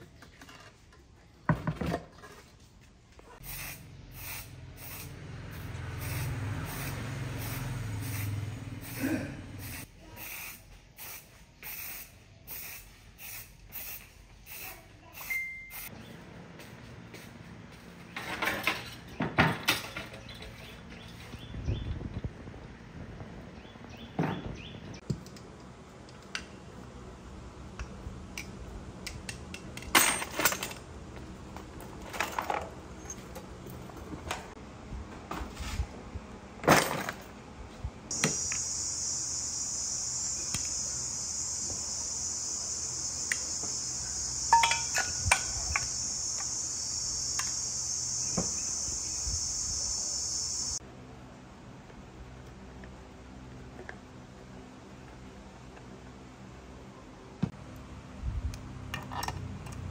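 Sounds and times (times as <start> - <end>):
metal engine parts clinking: 29.7 - 30.9, 44.5 - 45.9
steady high-pitched hiss: 38.1 - 50.8.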